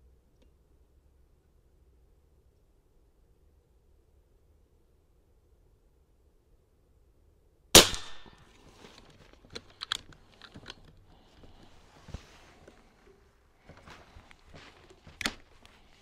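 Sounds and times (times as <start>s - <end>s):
air rifle shot: 7.8s - 8.5s
light clicks of rifle handling: 7.9s - 16.0s.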